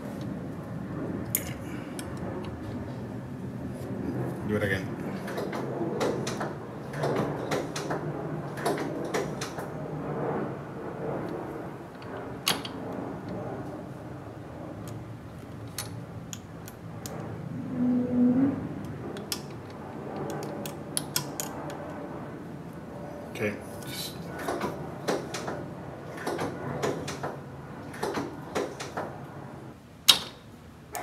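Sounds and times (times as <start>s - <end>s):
brief low hum: 17.5s - 19.2s.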